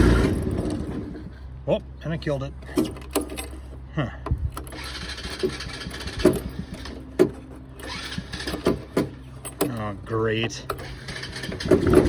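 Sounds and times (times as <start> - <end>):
recoil starter rope pulls: 4.4 - 7.2, 10.7 - 12.0
small engine turning over roughly: 4.6 - 7.1, 7.8 - 8.9, 10.8 - 12.0.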